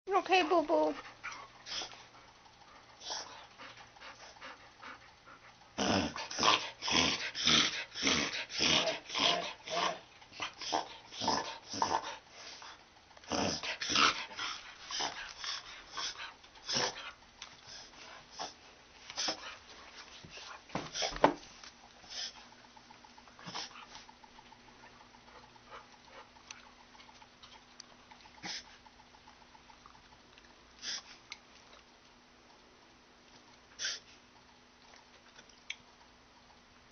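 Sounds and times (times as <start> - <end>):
dog snorting and sniffing: 1.0 - 31.3, 33.7 - 34.6
dog reverse sneezing: 33.8 - 34.1.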